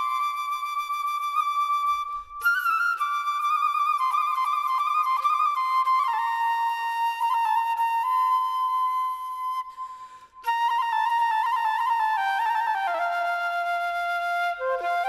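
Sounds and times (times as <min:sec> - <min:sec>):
solo flute folk melody: 0:00.0 - 0:15.0.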